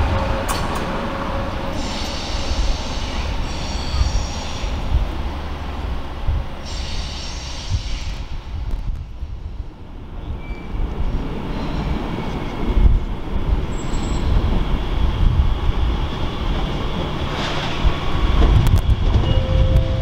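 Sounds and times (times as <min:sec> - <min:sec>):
train rumble approaching: 0:00.0 - 0:20.0
high wheel squeals: 0:01.8 - 0:04.8.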